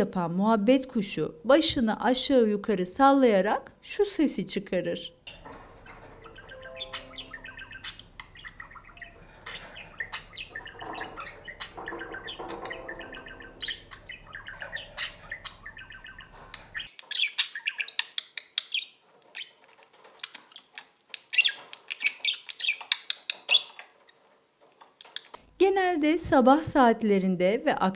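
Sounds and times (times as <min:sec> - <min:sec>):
high budgie chirping bursts: 0:05.5 - 0:19.6
budgie warbling chirps and clicks: 0:06.2 - 0:19.5, 0:20.2 - 0:23.9.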